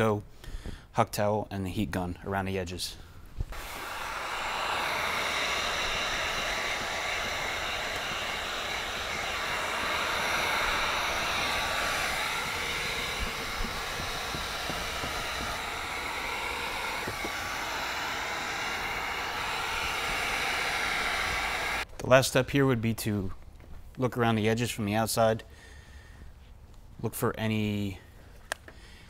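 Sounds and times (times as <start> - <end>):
heat gun blowing: 3.4 - 21.9.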